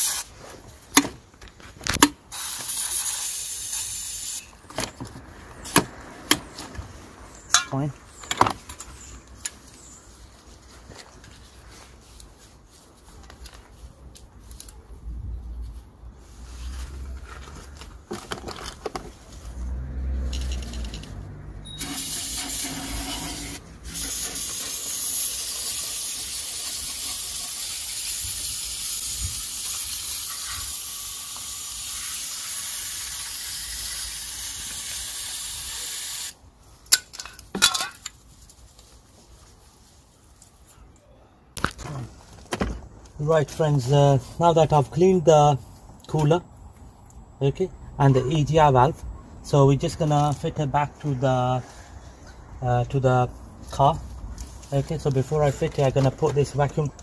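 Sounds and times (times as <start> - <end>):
aerosol spray hissing: 21.8 - 36.3.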